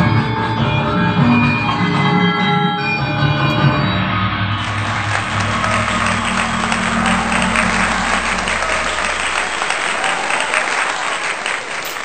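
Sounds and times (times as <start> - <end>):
low held music tones: 3.5 - 12.0
audience applauding: 4.6 - 12.0.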